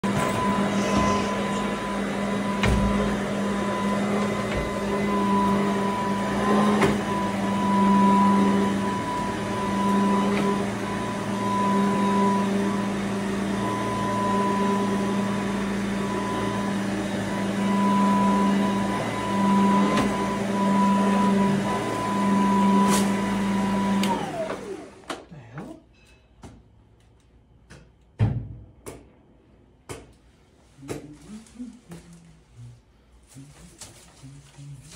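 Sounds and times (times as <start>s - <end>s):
vacuum motor winding down: 0.0s - 25.1s
upright vacuum cleaner running: 0.0s - 25.2s.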